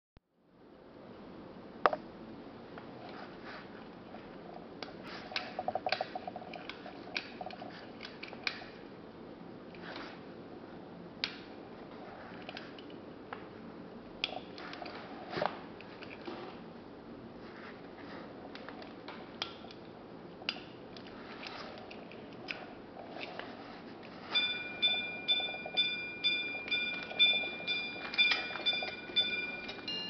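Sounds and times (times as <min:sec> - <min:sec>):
watch ringing strikes: 0:24.3 - 0:30.0.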